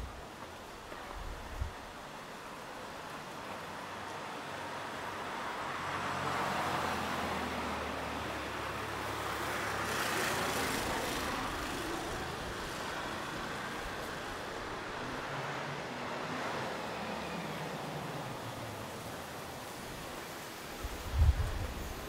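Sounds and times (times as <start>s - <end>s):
rush of hiss: 16.2s - 22.0s.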